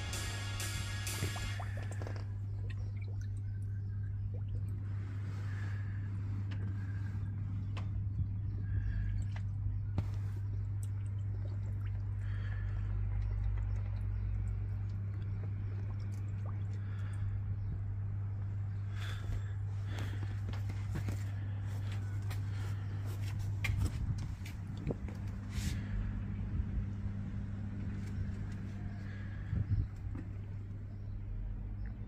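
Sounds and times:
steady low hum: 0.0 - 32.0
water dripping and bubbling: 1.1 - 7.1, 7.7 - 23.5.

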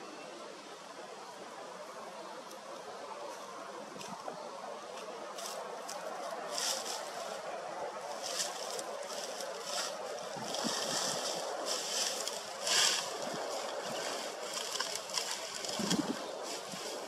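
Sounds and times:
wind and water rush: 5.5 - 17.0.

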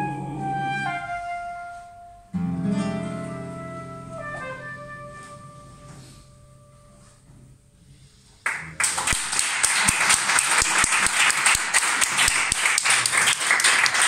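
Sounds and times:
audience applause: 8.4 - 14.0.

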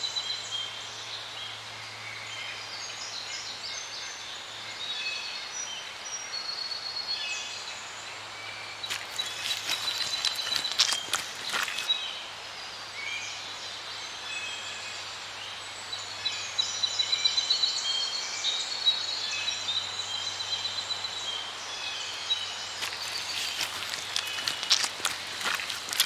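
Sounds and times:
small birds chirping: 8.7 - 12.3, 20.0 - 26.0.

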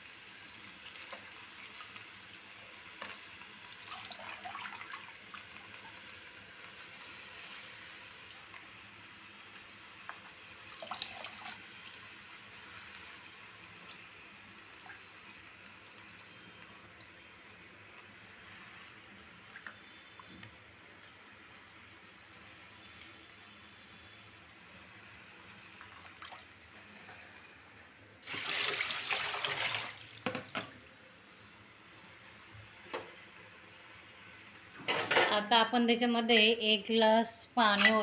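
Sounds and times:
leaves sizzling in a pan: 0.0 - 30.4.

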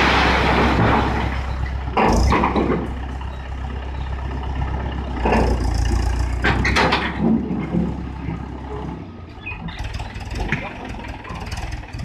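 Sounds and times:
tractor diesel engine running: 0.0 - 12.0
sharp knocks and clatter: 0.4 - 3.1, 5.2 - 9.0.

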